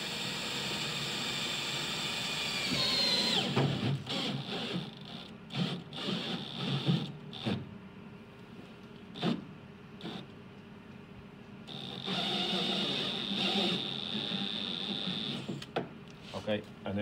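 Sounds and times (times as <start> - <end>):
cordless drill whining: 0.0 - 7.6, 11.7 - 15.7.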